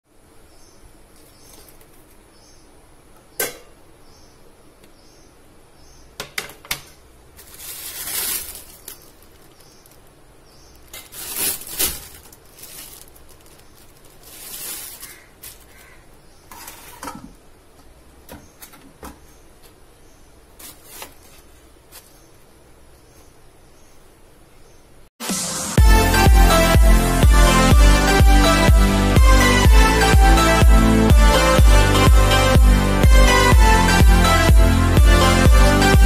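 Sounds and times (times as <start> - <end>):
plastic bag crinkling: 7.4 - 16.0, 20.6 - 22.1.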